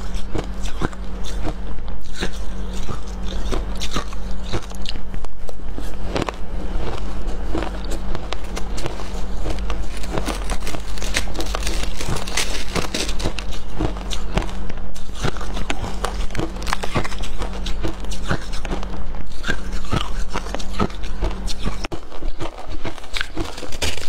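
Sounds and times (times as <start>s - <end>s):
chewing: 0.0s - 24.0s
low steady hum: 0.0s - 24.0s
shaved ice crunching: 5.8s - 18.7s, 19.4s - 24.0s.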